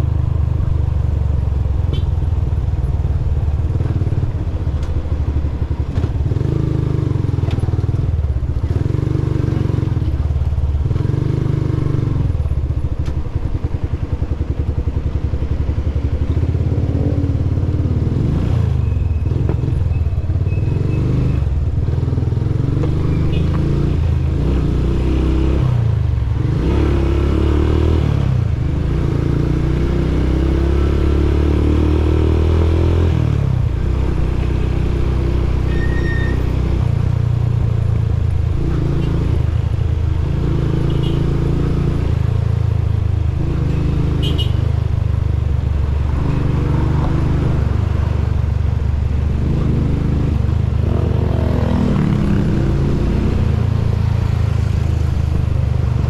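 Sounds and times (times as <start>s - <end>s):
motorcycle engine running: 37.0s - 56.0s.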